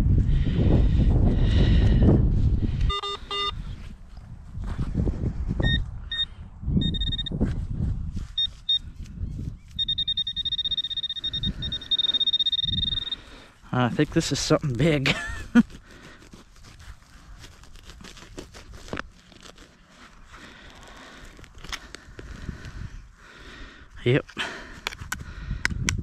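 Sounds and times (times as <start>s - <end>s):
lower beeps: 2.9s - 3.6s, 5.6s - 7.4s, 8.4s - 8.9s, 9.7s - 13.3s
metal detector high beeps: 2.9s - 3.6s, 5.6s - 7.4s, 8.4s - 8.9s, 9.7s - 13.3s
rustling in grass: 7.4s - 10.4s, 12.8s - 22.5s.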